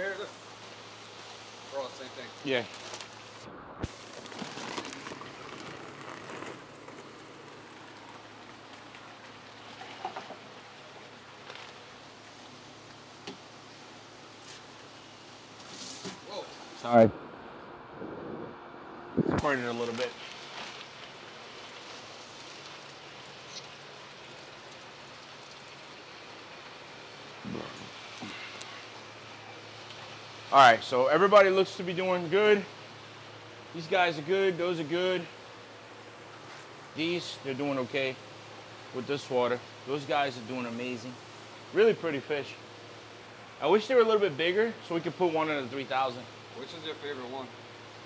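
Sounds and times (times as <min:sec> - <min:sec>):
water splashing and bubbling: 0:03.2 - 0:12.9, 0:20.4 - 0:29.9
hiss of running water: 0:19.4 - 0:30.9.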